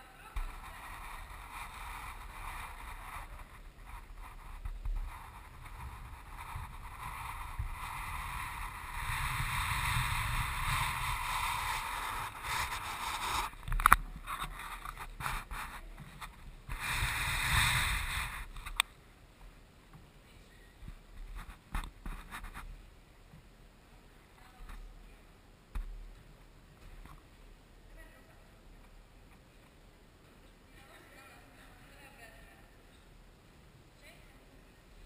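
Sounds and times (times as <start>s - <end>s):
camera handling noise: 12.5s - 15.4s.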